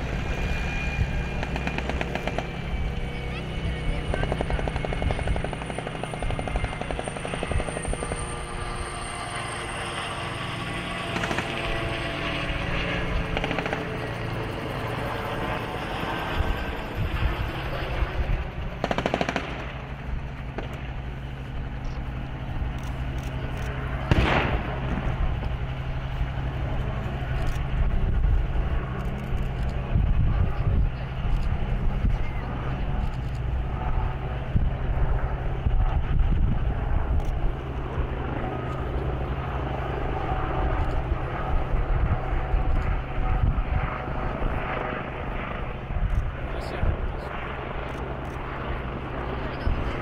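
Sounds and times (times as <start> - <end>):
tracked vehicle engines running: 0.0 - 50.0
gunfire: 1.4 - 2.5, 11.2 - 11.5, 18.8 - 19.8, 20.5 - 20.8, 24.1 - 25.2
loud blasts: 24.0 - 25.4.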